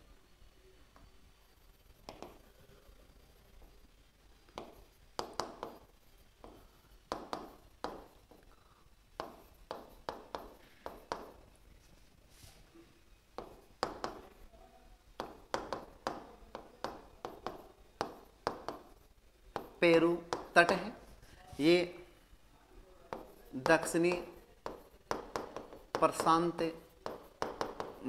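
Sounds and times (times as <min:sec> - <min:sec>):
stylus tapping on glass screen: 0:02.0 - 0:02.4, 0:04.5 - 0:08.4, 0:09.2 - 0:11.4, 0:13.4 - 0:14.3, 0:15.2 - 0:21.0, 0:23.1 - 0:28.0.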